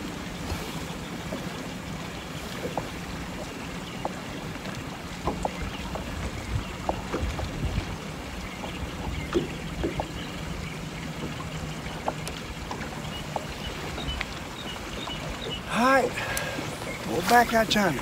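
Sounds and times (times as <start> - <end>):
water lapping against boat: 0.0 - 18.0
wind buffeting microphone: 5.1 - 18.0.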